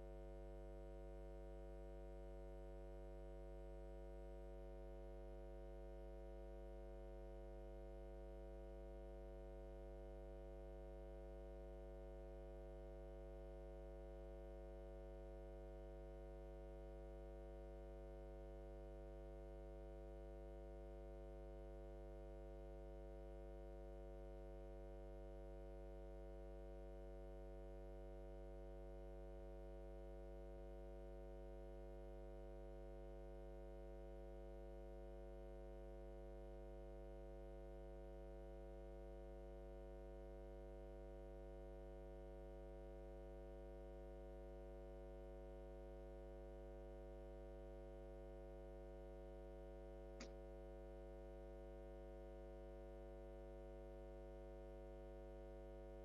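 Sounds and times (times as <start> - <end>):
faint click: 50.2 - 50.4.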